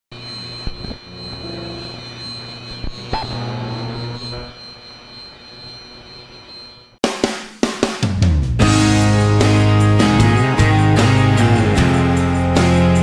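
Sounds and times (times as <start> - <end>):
high whine: 0.1 - 7.0.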